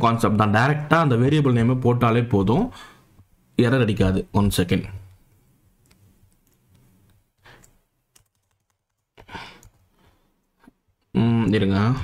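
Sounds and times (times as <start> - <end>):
computer keyboard and mouse clicks: 5.3 - 9.9
soft breaths: 9.2 - 10.9.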